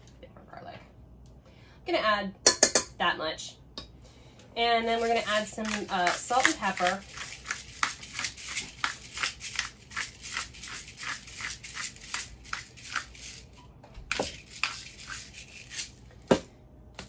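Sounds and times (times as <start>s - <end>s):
pepper mill grinding: 4.7s - 16.1s.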